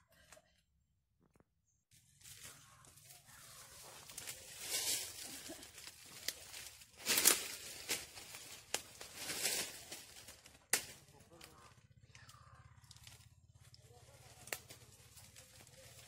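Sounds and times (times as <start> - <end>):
rustling and crackling: 2.2 - 11.8.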